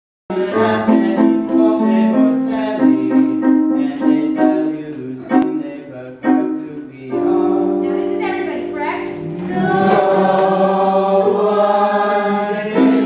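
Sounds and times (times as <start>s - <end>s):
slow melody of held notes: 4.4s - 11.7s.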